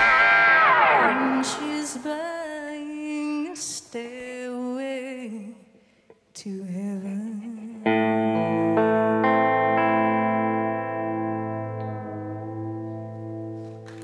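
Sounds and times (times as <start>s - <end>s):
electric guitar chord: 0.0s - 2.4s, 7.9s - 14.0s
woman singing with vibrato: 0.0s - 5.7s, 6.4s - 10.7s.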